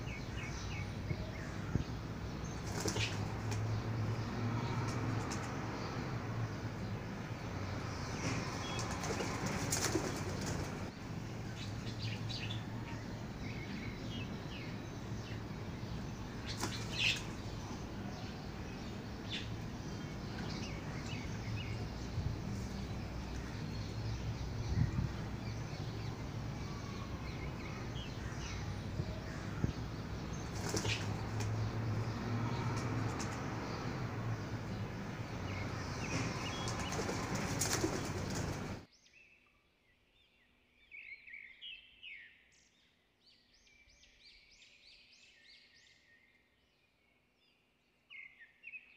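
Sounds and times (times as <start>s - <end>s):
small birds chirping: 0.0s - 48.9s
bird calls: 8.1s - 34.8s, 35.4s - 39.6s.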